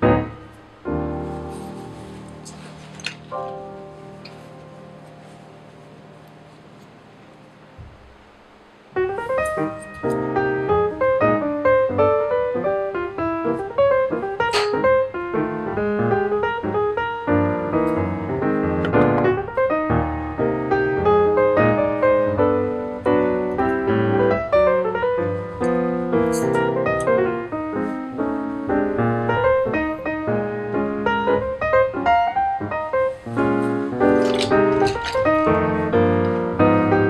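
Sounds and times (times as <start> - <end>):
piano music: 0.0 - 7.8, 8.9 - 37.0.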